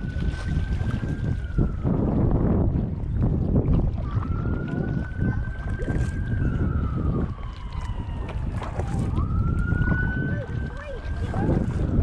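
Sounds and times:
paddle knocks and splashes: 0:00.0 - 0:12.0
wind buffeting microphone: 0:00.0 - 0:12.0
distant wailing tone: 0:04.0 - 0:12.0.

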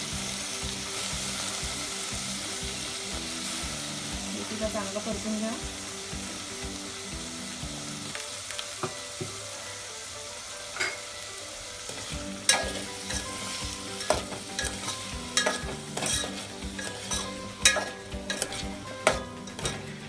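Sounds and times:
potatoes sizzling in oil: 0:00.0 - 0:20.0
metal spoon scraping a pot: 0:11.9 - 0:20.0.

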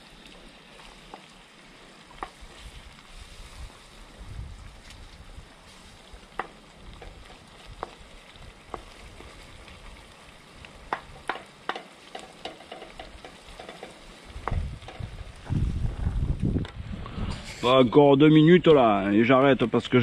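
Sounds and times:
fish frying in a pan: 0:00.0 - 0:15.5
utensil clicking against pan: 0:10.9 - 0:15.1
low rumble: 0:14.5 - 0:18.0.

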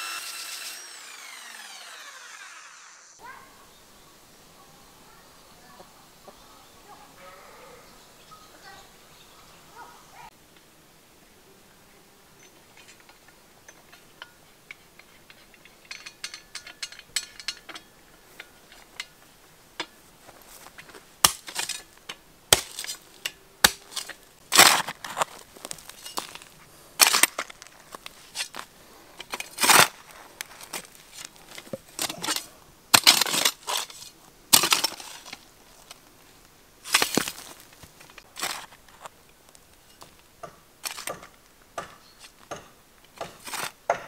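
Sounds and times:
mattock striking stony soil: 0:18.4 - 0:44.0
soil and gravel sliding: 0:20.0 - 0:41.1.

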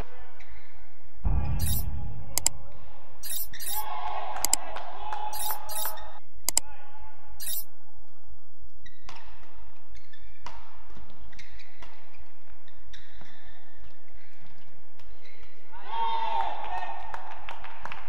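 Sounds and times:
shoes squeaking: 0:01.5 - 0:01.9, 0:03.2 - 0:04.6, 0:05.4 - 0:06.2, 0:07.4 - 0:07.7.

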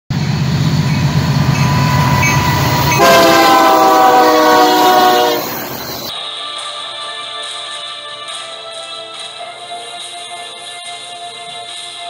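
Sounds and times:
diesel locomotive rumbling past: 0:00.1 - 0:06.1
locomotive air horn chord: 0:00.2 - 0:06.1.

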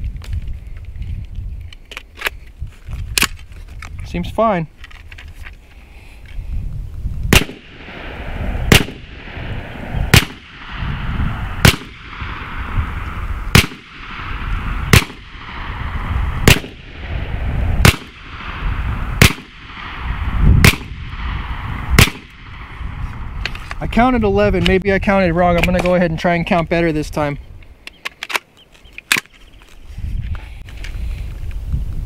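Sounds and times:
rushing air noise: 0:05.9 - 0:24.4
airgun shots: 0:07.3 - 0:23.2.

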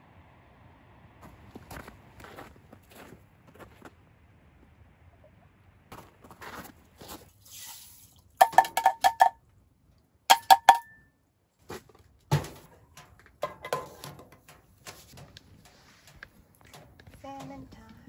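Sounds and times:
metal cookware clinking: 0:08.4 - 0:09.4, 0:10.3 - 0:11.0, 0:12.9 - 0:15.4.

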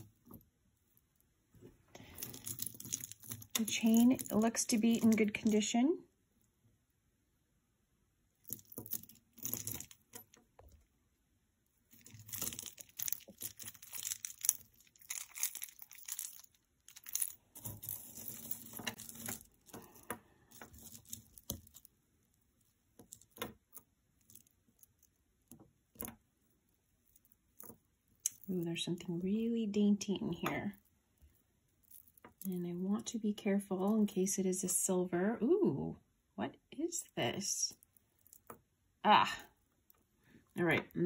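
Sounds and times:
jewelry chains and beads clinking: 0:00.0 - 0:01.0, 0:02.0 - 0:05.8, 0:08.4 - 0:10.4, 0:11.9 - 0:22.0, 0:27.0 - 0:33.1.

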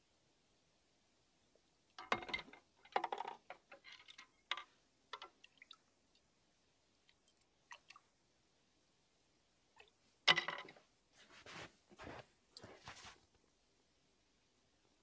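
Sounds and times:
water dripping: 0:05.1 - 0:06.3, 0:07.0 - 0:08.1.

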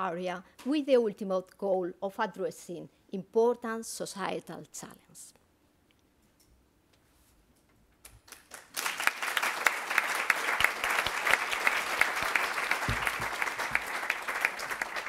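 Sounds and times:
audience applauding: 0:08.3 - 0:15.0.

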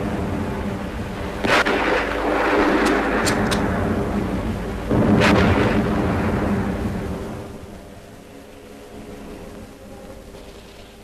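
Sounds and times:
rumble: 0:00.0 - 0:11.0
steady low drone: 0:00.0 - 0:11.0
sharp gunshots: 0:01.4 - 0:03.8, 0:04.9 - 0:06.6
artillery blast: 0:01.4 - 0:07.6.

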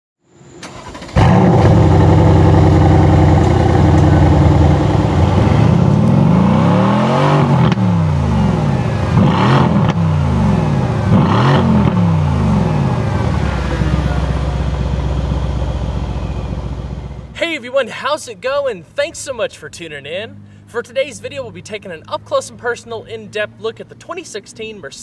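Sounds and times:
car engine revving: 0:00.6 - 0:17.4.

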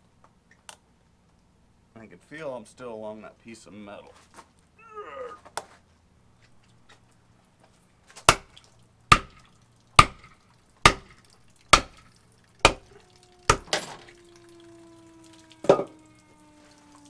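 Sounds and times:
wooden block pounding tool handle: 0:10.0 - 0:12.0
faint tone falling in pitch: 0:12.9 - 0:17.0.

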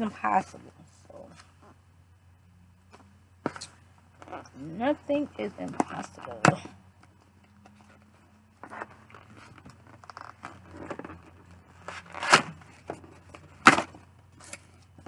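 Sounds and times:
cardboard flaps rustling and scraping: 0:07.6 - 0:15.0
tape ripping: 0:11.8 - 0:12.7.

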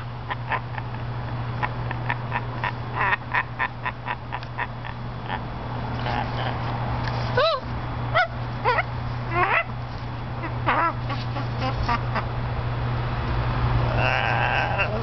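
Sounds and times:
macaw squawking: 0:08.2 - 0:09.8, 0:10.4 - 0:12.2.

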